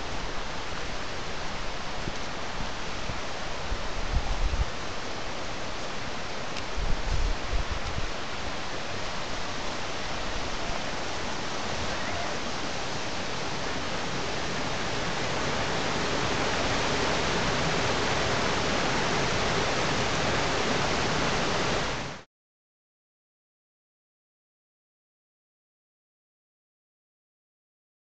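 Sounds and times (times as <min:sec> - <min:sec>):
stream rushing over boulders: 0:00.0 - 0:22.3.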